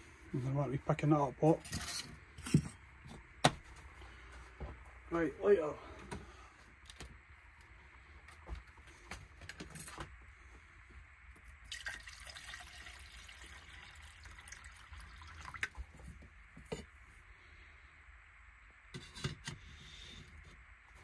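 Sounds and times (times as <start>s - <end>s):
water pouring into a metal pot: 11.6s - 15.9s.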